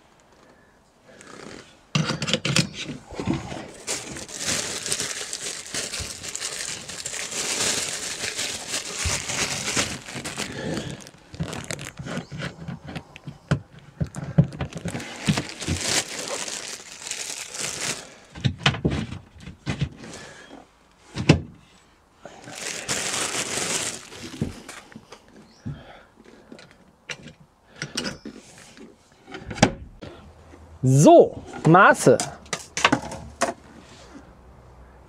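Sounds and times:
plastic bag crinkling: 0:03.1 - 0:12.4, 0:14.1 - 0:18.3, 0:22.4 - 0:24.9.

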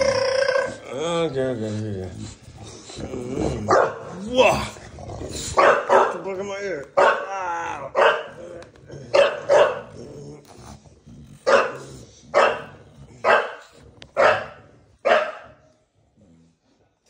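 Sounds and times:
dog growling: 0:00.0 - 0:17.0
dog play-barking: 0:03.6 - 0:04.3, 0:05.4 - 0:10.3, 0:11.3 - 0:15.8.

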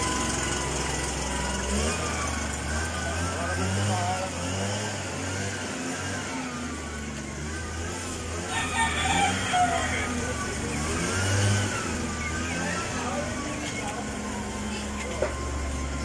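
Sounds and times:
rooster crowing: 0:08.4 - 0:10.6.

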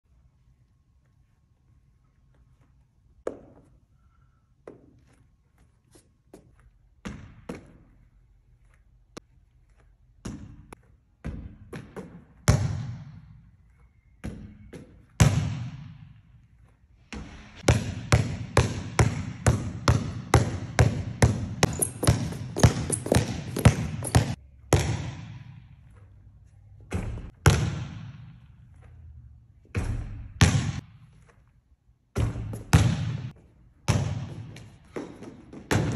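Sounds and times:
basketball bouncing on gym floor: 0:07.0 - 0:08.1, 0:10.2 - 0:13.4, 0:14.2 - 0:16.3, 0:17.1 - 0:26.0, 0:26.8 - 0:29.0, 0:29.6 - 0:31.4, 0:32.1 - 0:35.9
basketball hitting rim: 0:14.2 - 0:16.1, 0:17.1 - 0:25.7, 0:26.9 - 0:28.6, 0:29.6 - 0:31.3, 0:32.1 - 0:35.9
fast basketball dribbling: 0:17.2 - 0:25.4.

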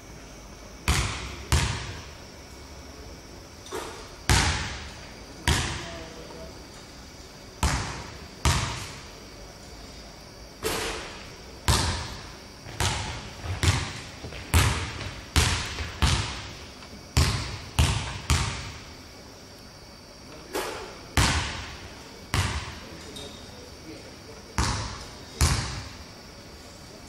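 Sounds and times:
basketball bouncing on wooden floor: 0:00.9 - 0:01.9, 0:07.6 - 0:08.8, 0:11.7 - 0:16.5, 0:17.2 - 0:18.8, 0:22.4 - 0:22.7.

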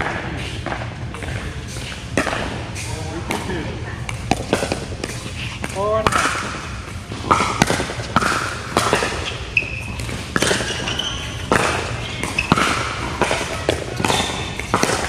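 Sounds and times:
paddles striking a ball: 0:00.0 - 0:15.0
sneakers squeaking on court: 0:07.3 - 0:15.0.

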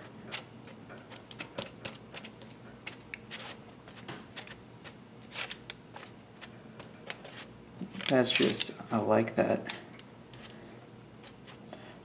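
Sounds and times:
spatula scraping: 0:02.9 - 0:07.5.

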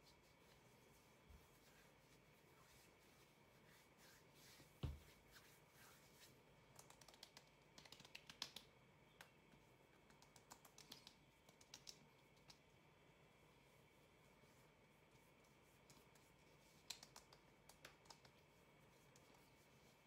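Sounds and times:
dull thump: 0:04.8 - 0:05.0
hands patting skin: 0:06.7 - 0:09.4, 0:10.0 - 0:12.7, 0:15.2 - 0:20.0.

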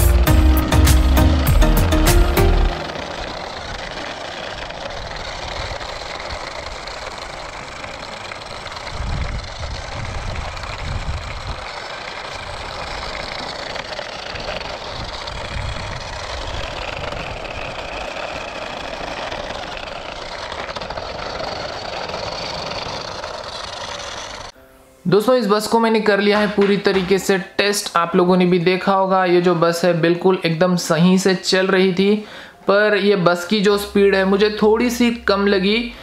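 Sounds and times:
low rumbles: 0:00.0 - 0:24.5, 0:32.9 - 0:36.0
toy motor and gears whirring: 0:00.0 - 0:24.5.

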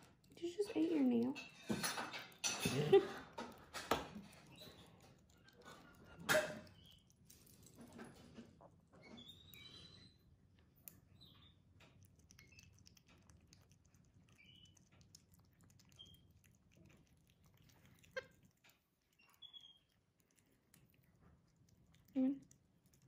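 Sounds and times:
monkey chirping: 0:19.2 - 0:19.9.

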